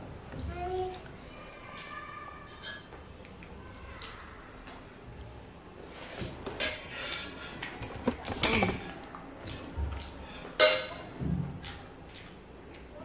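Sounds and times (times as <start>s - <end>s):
dishes clinking and knocking: 6.5s - 9.0s, 10.4s - 11.5s.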